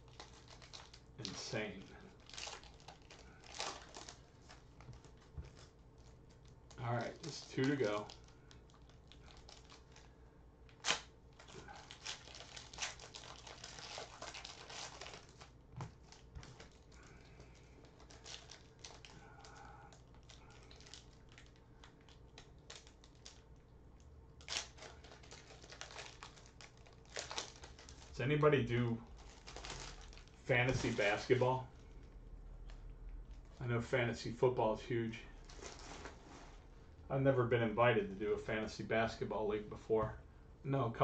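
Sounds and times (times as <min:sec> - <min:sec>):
wrapper tearing: 0:00.0 - 0:23.6, 0:24.4 - 0:28.2, 0:29.1 - 0:32.0, 0:35.4 - 0:36.6
wrapper crinkling: 0:00.0 - 0:23.7, 0:24.3 - 0:28.4, 0:29.0 - 0:33.6, 0:35.4 - 0:36.7.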